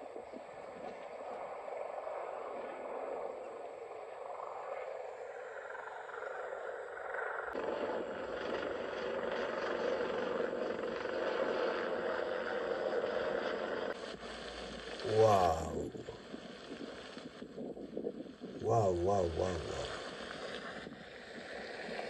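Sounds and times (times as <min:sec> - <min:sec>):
helicopter passing low overhead: 0:06.5 - 0:13.9.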